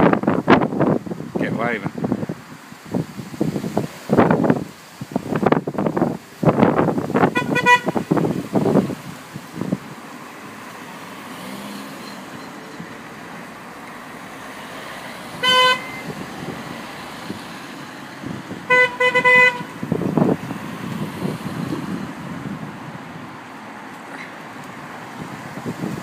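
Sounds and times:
cars driving past on tarmac: 0.0s - 26.0s
car horns tooting: 7.2s - 8.2s, 15.4s - 16.2s, 18.6s - 20.1s.

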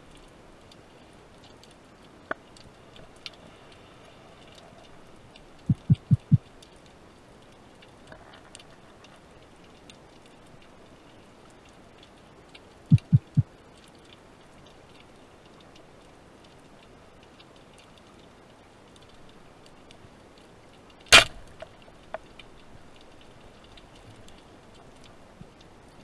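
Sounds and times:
faint crackling ticks: 0.0s - 26.0s
small clicks: 0.1s - 26.0s
low thumps: 5.6s - 6.4s
speargun firing crack: 21.1s - 21.4s.

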